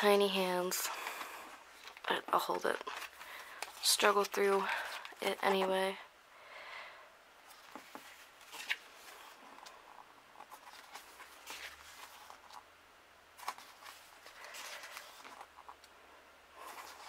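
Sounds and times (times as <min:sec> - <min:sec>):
book pages turning: 0:01.8 - 0:05.7, 0:07.4 - 0:12.7, 0:13.4 - 0:15.9, 0:16.6 - 0:17.0.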